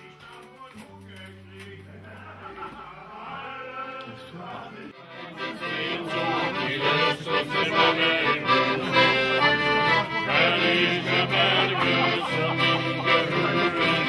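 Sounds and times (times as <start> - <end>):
acoustic guitar: 0.0 - 14.0
accordion playing folk tune: 4.9 - 14.0.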